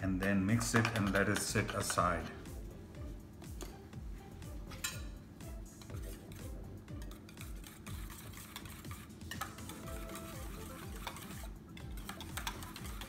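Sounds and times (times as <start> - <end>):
background music with beat: 0.1 - 13.0
spoon scraping steel bowl: 5.8 - 13.0.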